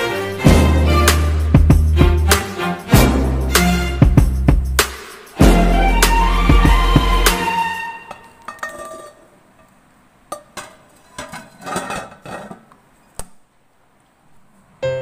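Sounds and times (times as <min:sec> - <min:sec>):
metal pan clinking on rack: 0:08.1 - 0:09.2.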